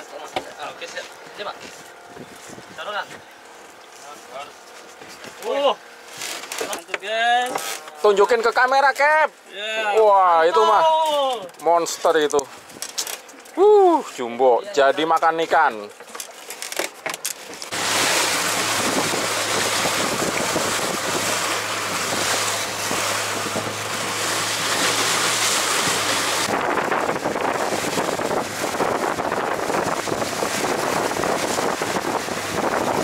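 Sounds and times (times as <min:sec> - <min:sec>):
water rushing along boat hull: 0:00.0 - 0:14.2, 0:15.1 - 0:33.0
wind noise on microphone: 0:17.9 - 0:24.2, 0:25.6 - 0:33.0.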